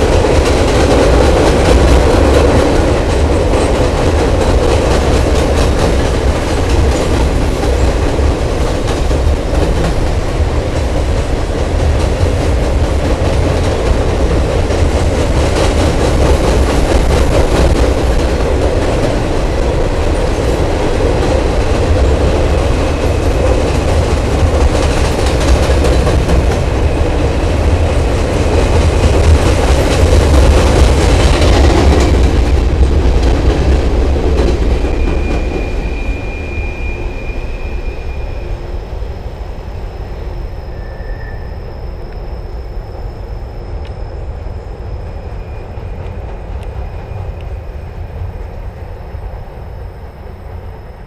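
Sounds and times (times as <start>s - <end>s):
train wheels rumbling over bridge: 0.0s - 51.0s
high wheel squeals: 34.8s - 39.0s, 39.9s - 46.2s.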